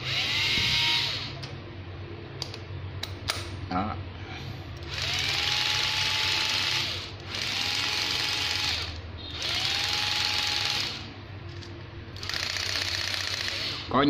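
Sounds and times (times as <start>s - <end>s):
cordless drill motor whine: 0.0s - 1.4s, 4.8s - 11.1s, 12.2s - 14.0s
drill clutch rapid ticking: 4.8s - 11.1s, 12.2s - 14.0s.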